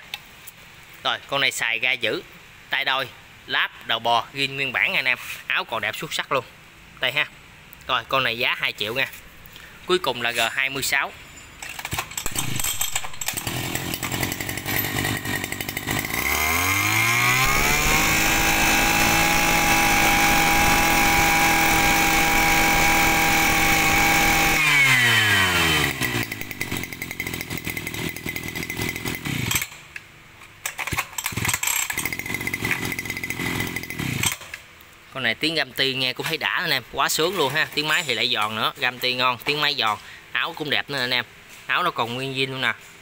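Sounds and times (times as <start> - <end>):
brush cutter engine revving: 12.3 - 29.8, 31.3 - 34.4.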